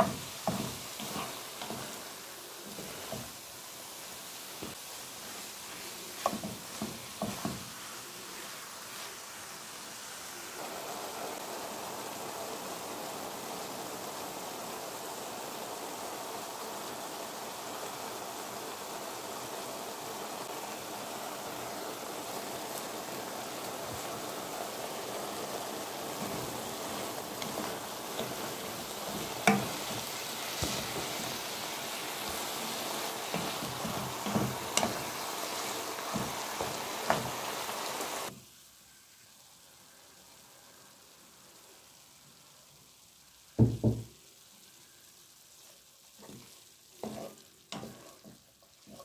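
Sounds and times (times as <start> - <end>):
wooden spoon scraping a pan: 0.0 - 3.4, 4.6 - 9.2, 25.9 - 37.9, 46.2 - 49.0
meat sizzling in a pan: 0.0 - 49.0.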